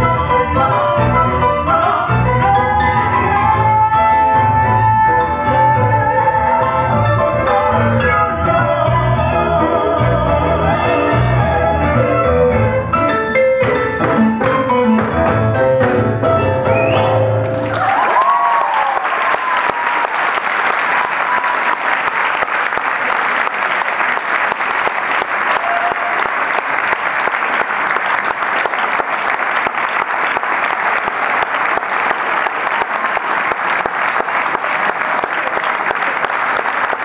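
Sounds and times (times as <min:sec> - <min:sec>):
audience applauding: 0:16.8 - 0:37.0.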